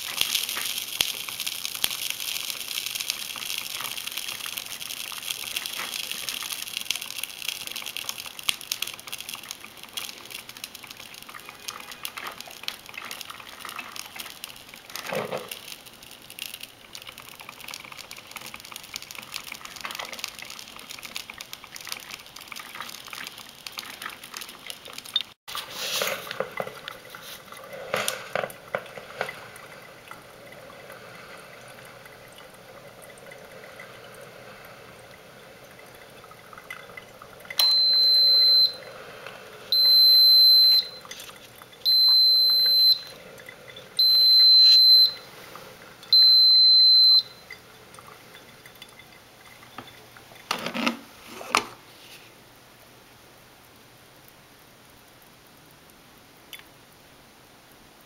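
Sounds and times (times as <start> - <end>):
coffee maker hissing and gurgling: 0.0 - 52.5.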